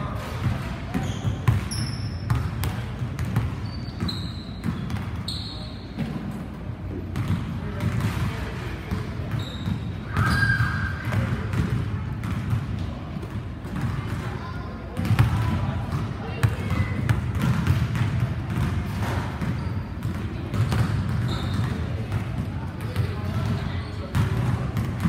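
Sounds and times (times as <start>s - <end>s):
sneaker squeaks: 0.0s - 6.6s, 7.2s - 11.6s, 18.5s - 25.0s
basketballs bouncing on hardwood: 0.3s - 5.2s, 7.2s - 14.3s, 15.0s - 15.6s, 16.4s - 25.0s.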